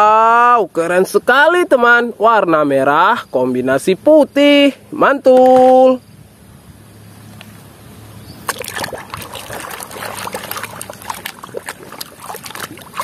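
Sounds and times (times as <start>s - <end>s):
water splashing and sloshing in basin: 8.4s - 13.0s.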